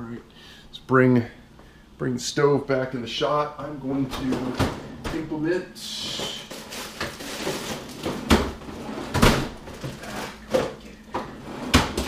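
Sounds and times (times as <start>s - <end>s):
frozen packages and basket clattering: 6.0s - 8.2s, 9.7s - 10.8s.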